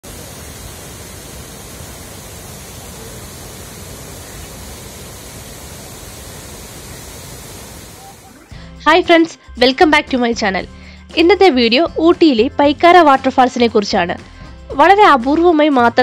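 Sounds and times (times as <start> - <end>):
waterfall rushing: 0.0 - 8.6.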